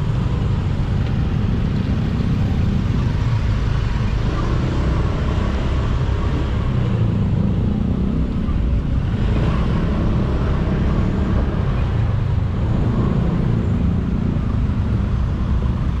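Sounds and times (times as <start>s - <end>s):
road and traffic noise: 0.0s - 16.0s.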